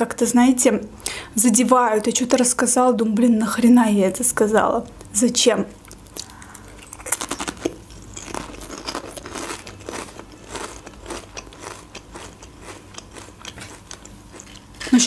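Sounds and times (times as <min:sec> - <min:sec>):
potato chip crunching: 0:05.8 - 0:15.0.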